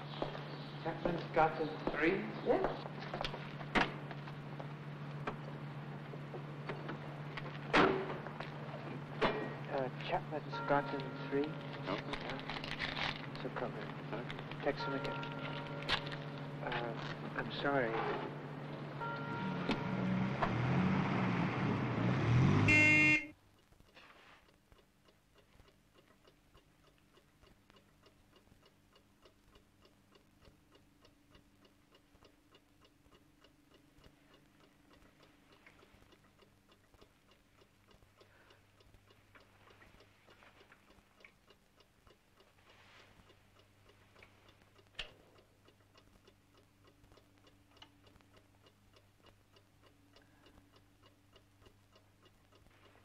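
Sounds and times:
low steady hum: 0.0s - 22.1s, 22.7s - 53.0s
car and street noise: 0.0s - 23.4s
clock ticking faintly: 0.1s - 20.2s, 23.1s - 53.0s.

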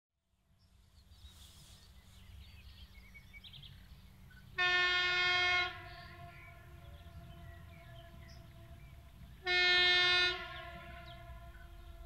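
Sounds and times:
train horn blast: 4.6s - 12.0s.

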